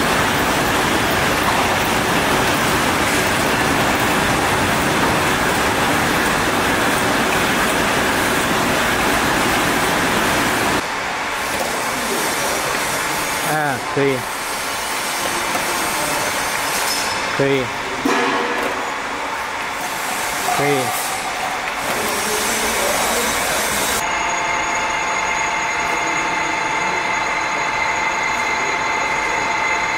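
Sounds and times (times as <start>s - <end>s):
bottle filling line running: 0.0s - 29.9s
machinery whines: 0.0s - 29.9s.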